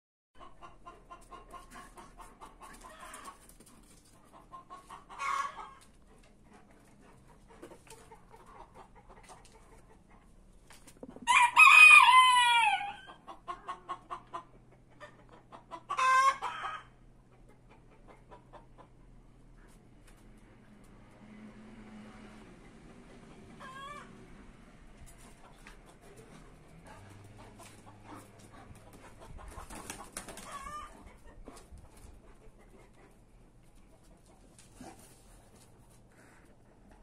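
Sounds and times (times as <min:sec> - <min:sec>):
rooster clucking: 0:00.4 - 0:19.1, 0:23.4 - 0:24.2, 0:25.0 - 0:35.3
rooster crowing: 0:11.2 - 0:13.1.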